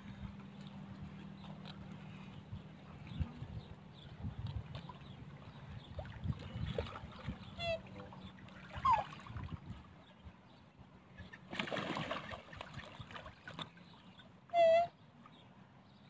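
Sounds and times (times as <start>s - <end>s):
water birds calling: 0.0s - 16.0s
water splashing: 4.5s - 9.9s, 11.3s - 14.8s.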